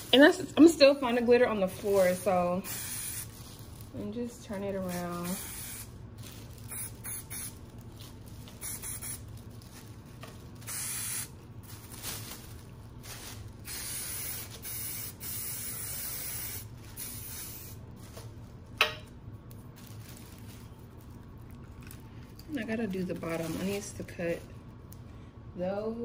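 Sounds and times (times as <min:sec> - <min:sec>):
aerosol spray hissing: 0:02.6 - 0:03.3, 0:05.1 - 0:05.9, 0:06.7 - 0:07.6, 0:08.6 - 0:09.2, 0:10.7 - 0:11.3, 0:13.6 - 0:17.8.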